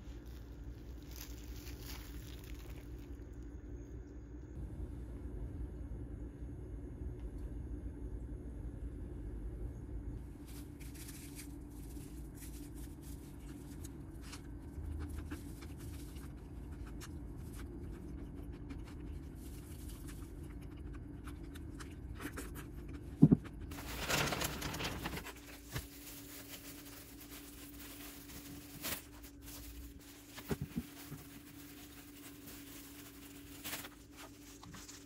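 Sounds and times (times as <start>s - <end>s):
low hum: 0.0s - 35.0s
handling rustling and ticks: 23.7s - 35.0s.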